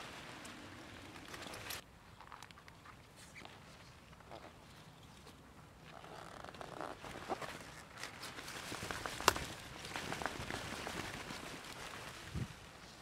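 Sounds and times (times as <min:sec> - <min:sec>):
leaves and stems rustling: 0:00.0 - 0:01.8, 0:06.3 - 0:13.0.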